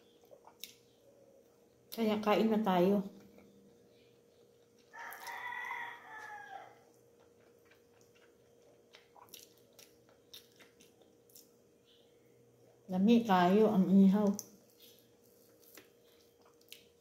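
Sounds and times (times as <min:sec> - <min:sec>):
eating and chewing: 0:00.0 - 0:02.3, 0:03.1 - 0:12.9, 0:14.2 - 0:17.0
rooster crowing: 0:04.9 - 0:06.9.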